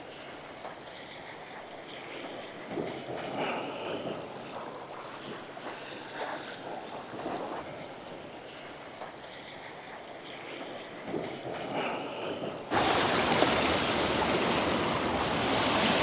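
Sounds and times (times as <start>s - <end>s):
wind on microphone: 11.1s - 16.0s
surf washing over rocks: 11.6s - 16.0s.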